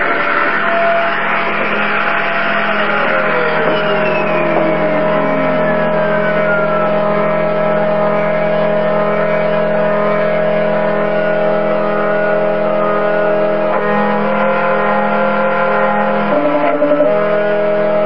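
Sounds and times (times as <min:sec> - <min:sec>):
router spindle hum and whine: 0:00.0 - 0:18.0.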